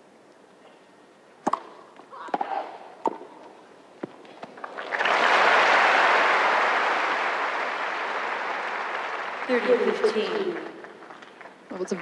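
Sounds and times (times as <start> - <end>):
tennis ball struck: 1.4 - 3.4
crowd applause: 4.6 - 11.0.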